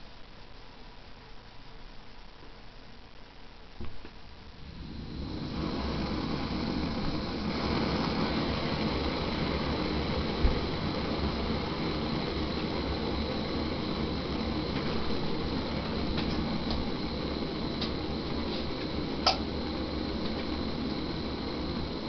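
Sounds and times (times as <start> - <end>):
camping stove hissing: 4.5 - 22.0.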